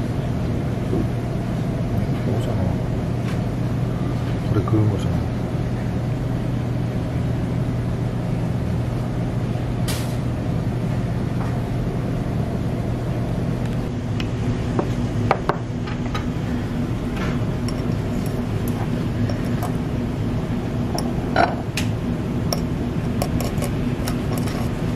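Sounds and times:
low hum: 5.2s - 24.9s.

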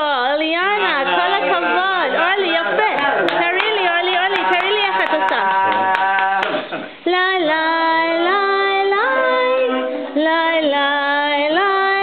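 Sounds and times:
woman singing slow melody: 7.0s - 12.0s.

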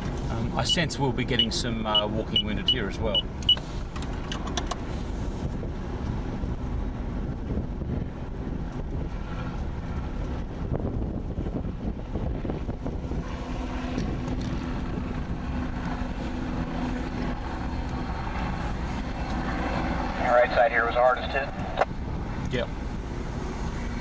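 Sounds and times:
car road noise on wet road: 0.0s - 24.0s.

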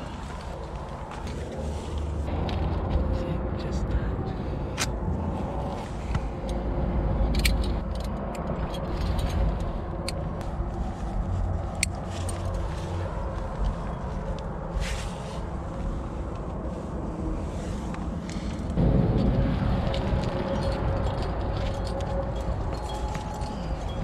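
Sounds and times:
wind buffeting microphone: 0.0s - 24.0s
climbing gear clicking and clinking: 6.4s - 10.6s, 11.2s - 14.6s, 18.2s - 24.0s.

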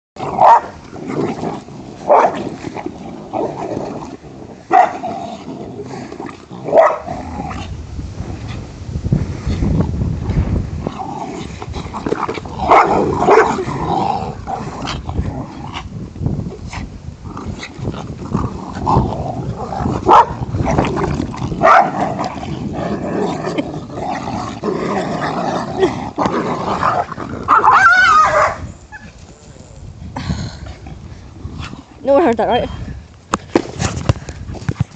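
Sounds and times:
dogs growling: 0.2s - 7.8s, 10.8s - 29.1s
dogs barking: 0.4s - 0.8s, 6.7s - 7.1s, 20.0s - 20.4s, 21.6s - 22.0s, 27.5s - 28.6s.

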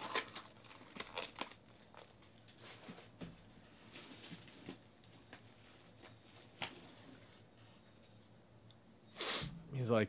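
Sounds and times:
faint low room hum: 0.0s - 10.0s.

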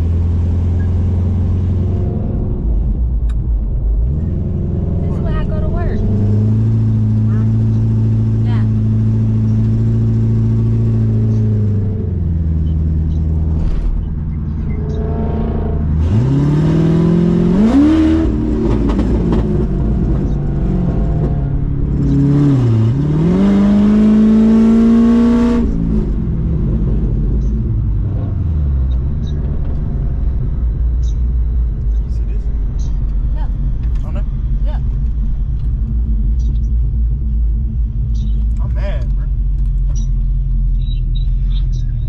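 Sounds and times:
loud car engine revving: 0.0s - 42.0s.

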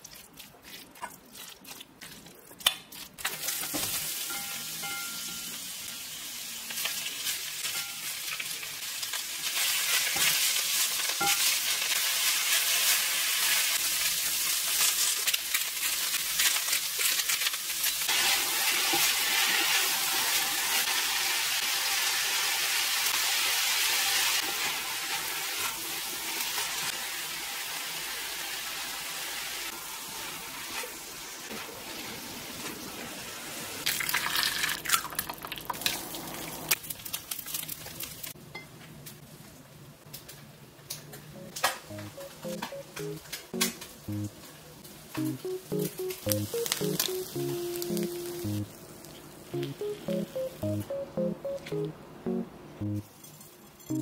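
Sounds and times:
food sizzling in a frying pan: 3.2s - 36.8s, 44.4s - 50.0s.

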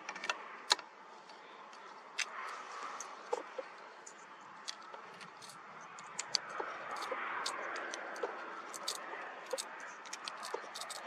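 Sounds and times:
sharp clicks: 3.0s - 11.0s.

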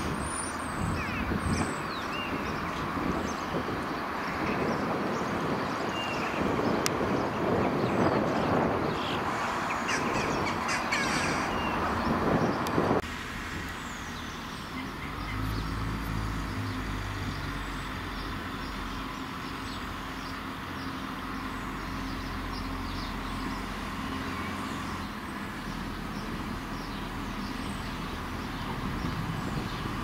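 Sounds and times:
small birds chirping: 0.0s - 13.0s, 13.6s - 30.0s
diesel train engine droning: 8.6s - 30.0s.

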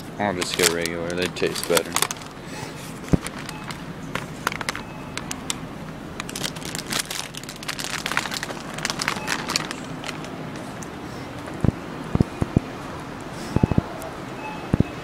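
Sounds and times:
crinkling handling noise: 0.0s - 11.6s
steady low hum: 0.0s - 15.0s.

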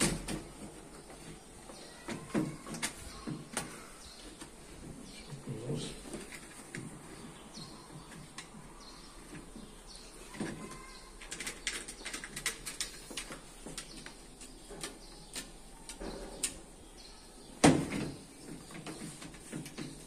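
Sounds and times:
clicks and taps on sheet metal: 17.6s - 20.0s.

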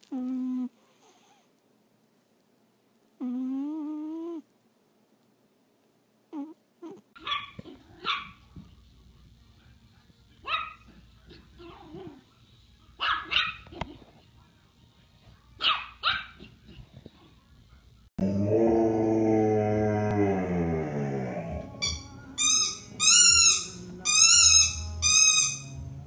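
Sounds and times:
puppy yapping: 6.8s - 8.4s, 13.0s - 14.0s.

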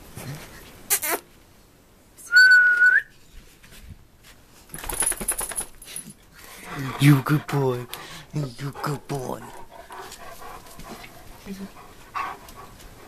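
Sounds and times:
short whistled note: 2.3s - 3.1s
rustle: 3.1s - 7.1s
quick breathy noises: 5.6s - 11.5s.

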